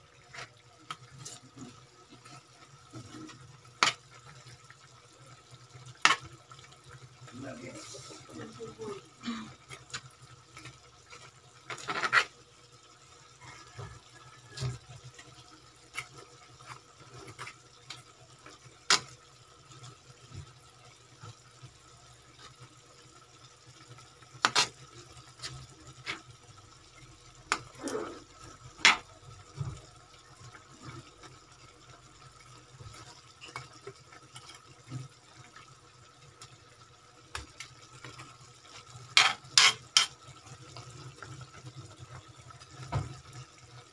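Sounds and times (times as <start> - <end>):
metal spoon scraping wok: 39.1 - 40.2.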